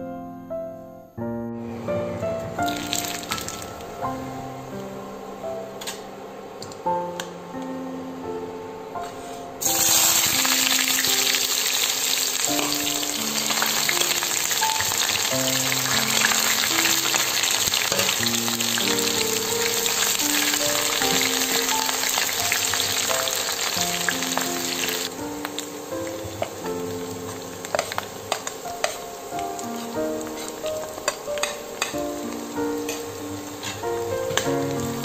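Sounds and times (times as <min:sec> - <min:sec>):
soft background music: 0:00.0 - 0:35.0
onion sizzling in hot oil: 0:02.6 - 0:04.4, 0:09.6 - 0:35.0.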